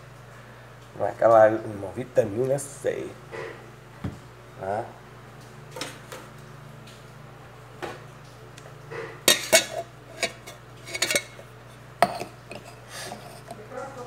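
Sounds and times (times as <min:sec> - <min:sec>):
metal cups clanking on counter: 0:09.2 - 0:13.6.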